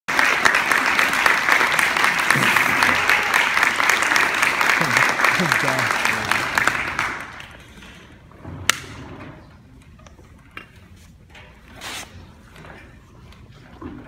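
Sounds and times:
audience applause: 0.1 - 7.6.

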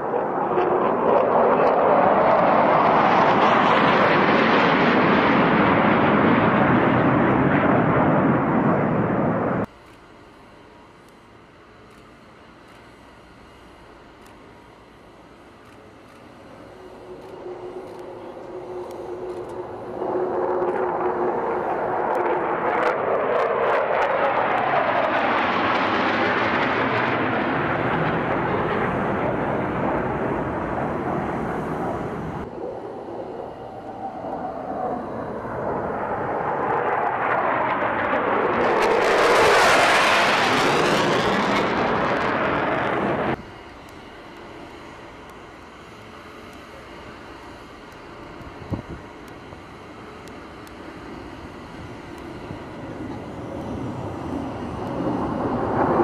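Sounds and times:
jet aircraft flying past: 0.0 - 9.7, 16.4 - 44.2, 48.8 - 56.0.

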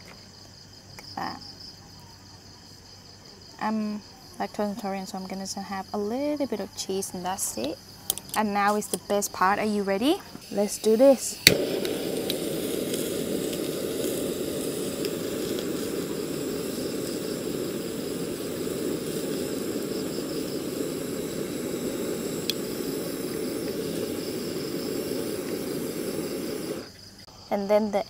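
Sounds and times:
kitchen torch flame hissing: 10.4 - 27.3.

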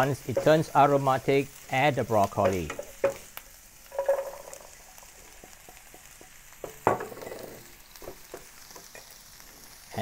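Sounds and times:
garlic sizzling in oil: 0.0 - 10.0
broccoli clattering into pan: 3.9 - 4.7.

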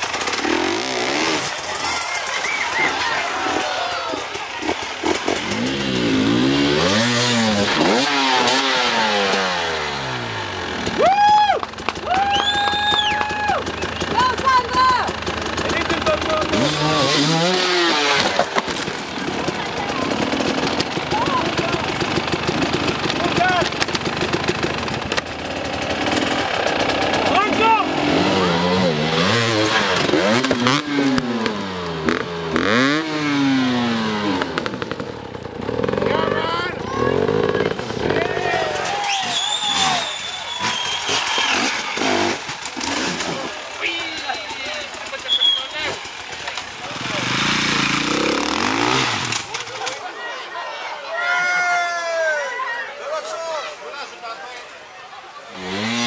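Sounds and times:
dirt bike engine revving: 0.0 - 50.0, 55.5 - 56.0.

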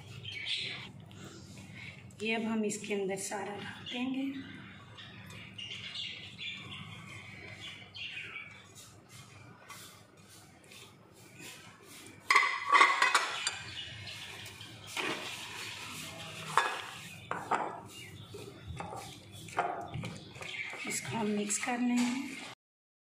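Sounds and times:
plate clattering against glass bowl: 12.3 - 13.6
spatula scraping a plate: 14.2 - 20.8.

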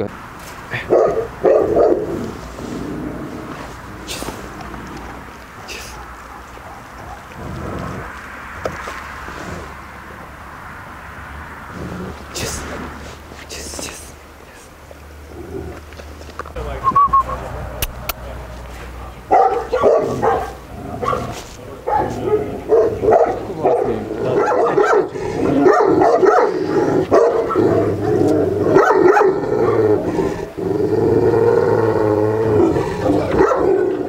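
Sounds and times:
dog barking deeply: 0.7 - 2.4, 5.7 - 8.0, 19.2 - 34.0
dog wavering call: 16.8 - 17.4.

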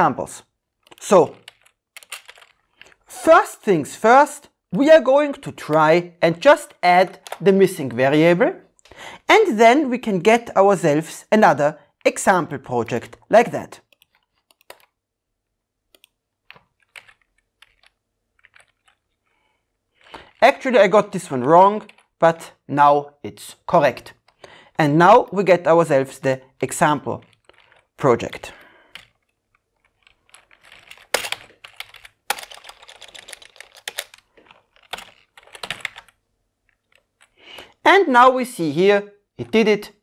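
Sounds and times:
typing on a computer keyboard: 0.8 - 3.0, 13.8 - 15.0, 15.9 - 19.0, 21.7 - 22.2, 28.8 - 36.2.

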